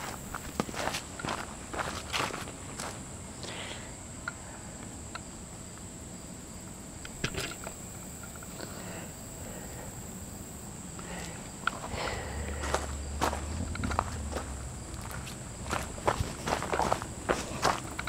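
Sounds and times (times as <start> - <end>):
footsteps on dirt trail: 0.0 - 3.0, 11.0 - 18.0
insects droning: 0.0 - 18.0.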